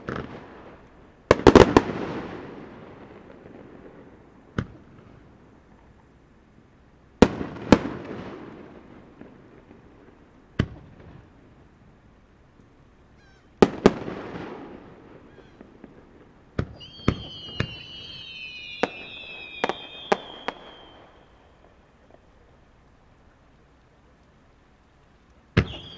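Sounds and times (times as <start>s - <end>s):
rolling echo: 13.3s - 23.0s
firework shells bursting with bangs: 13.4s - 22.5s, 25.5s - 25.9s
high falling firework whistles: 16.6s - 21.9s, 25.6s - 25.9s.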